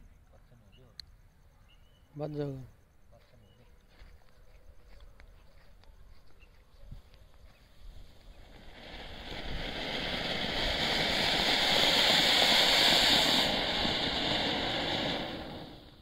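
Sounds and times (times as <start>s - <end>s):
firework fountain hissing: 7.6s - 16.0s.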